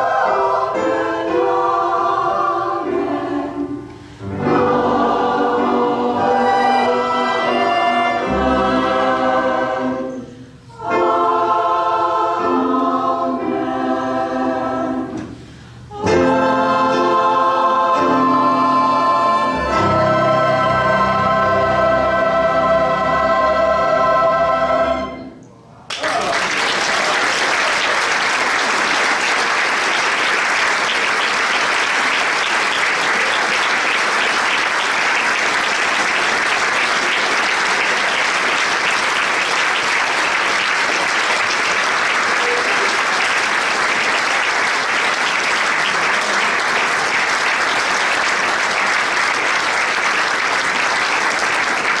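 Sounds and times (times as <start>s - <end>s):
audience applauding: 25.9s - 52.0s.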